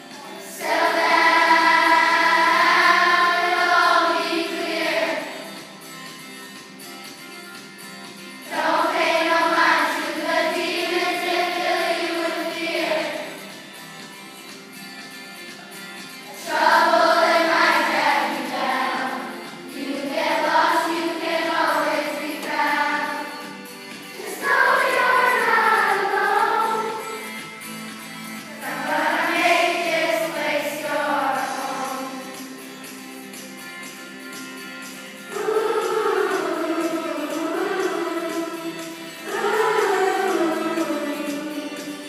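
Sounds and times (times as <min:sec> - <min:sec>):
music: 0:00.0 - 0:42.0
choir singing: 0:00.2 - 0:05.6, 0:08.5 - 0:13.6, 0:16.3 - 0:27.4, 0:28.5 - 0:32.5, 0:35.3 - 0:42.0.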